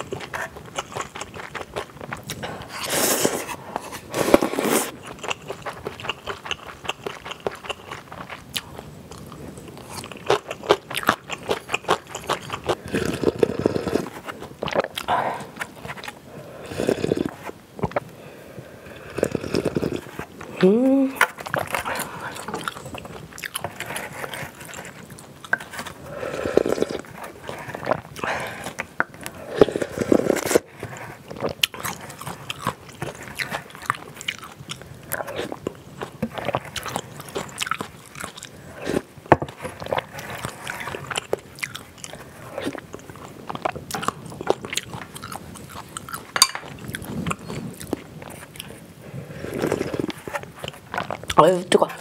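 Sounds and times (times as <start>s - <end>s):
person chewing noodles: 0.0s - 52.0s
person slurping noodles: 2.3s - 6.2s, 12.2s - 14.2s, 16.3s - 17.6s, 18.5s - 22.8s, 26.0s - 31.3s, 49.1s - 50.5s.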